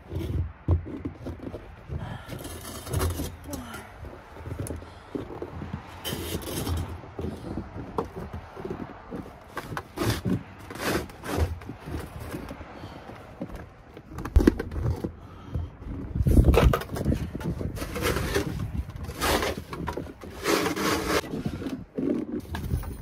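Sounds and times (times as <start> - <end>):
snow shovel scraping snow: 9.9 - 11.6, 17.8 - 22.4.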